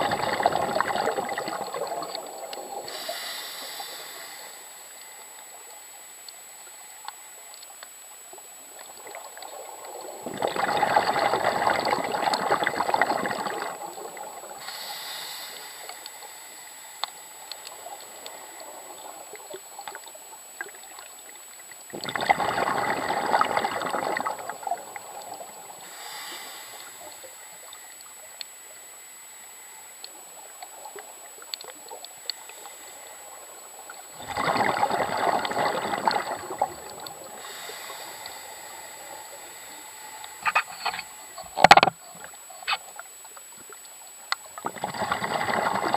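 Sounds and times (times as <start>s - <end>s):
underwater breath bubbles: 0.0s - 5.6s, 9.0s - 21.0s, 21.9s - 42.3s, 44.6s - 45.9s
faint clicks underwater: 0.8s - 2.7s, 6.2s - 8.0s, 15.8s - 16.2s, 17.0s - 18.4s, 26.8s - 28.6s, 30.0s - 32.7s, 33.9s - 37.2s, 40.2s - 45.9s.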